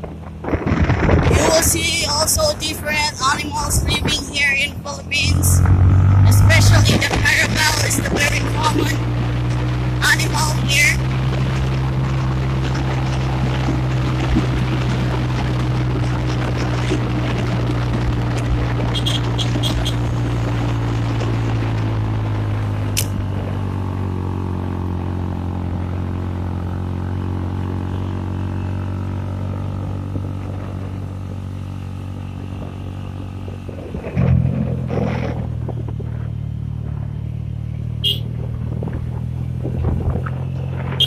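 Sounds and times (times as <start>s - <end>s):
motorcycle engine running: 0.0s - 41.0s
sharp tick: 22.9s - 23.2s.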